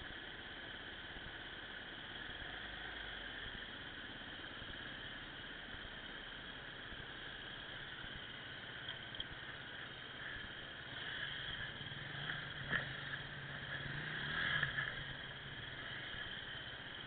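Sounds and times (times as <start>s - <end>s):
microphone hiss: 0.0s - 17.0s.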